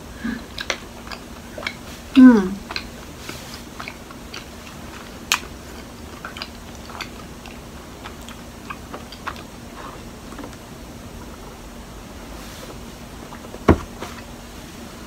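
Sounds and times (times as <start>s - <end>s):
wet chewing clicks and smacks: 0.4s - 11.4s.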